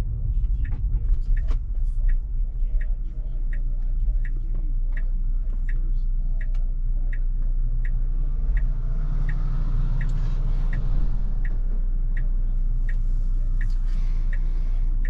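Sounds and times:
regular ticking: 0.0 - 15.0
truck passing with low rumble: 0.0 - 15.0.

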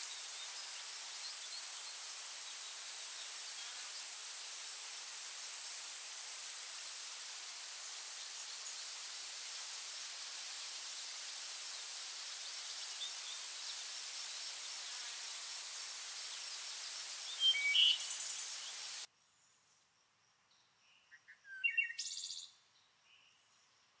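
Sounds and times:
insect drone: 0.0 - 19.1
steady hiss: 0.0 - 19.1
bird chirps: 16.9 - 19.0, 20.5 - 23.4.

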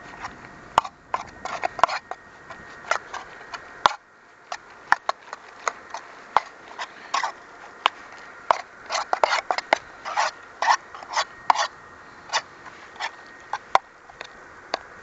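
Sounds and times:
utensil scraping a metal cup: 8.5 - 13.7.

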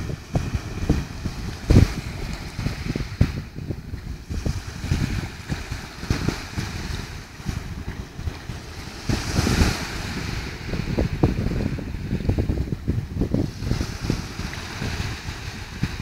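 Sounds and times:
wind buffeting microphone: 0.0 - 16.0
small waves on pebble beach: 4.2 - 11.3, 13.4 - 16.0.

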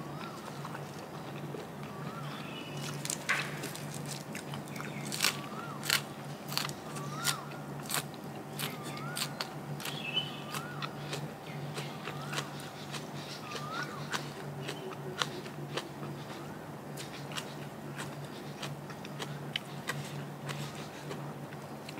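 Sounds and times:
crunchy chewing: 0.0 - 21.9
steady low hum: 0.0 - 21.9.

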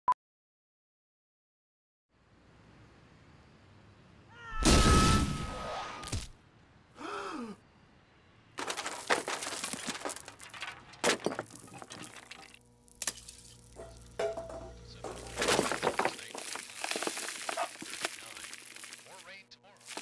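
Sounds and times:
man gasping: 7.0 - 7.6
debris crashing and breaking: 8.6 - 20.0.

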